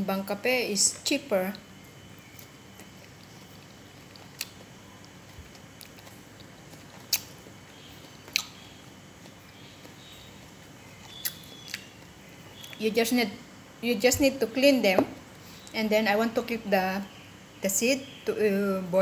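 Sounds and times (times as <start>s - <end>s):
person chewing fruit: 2.2s - 12.8s.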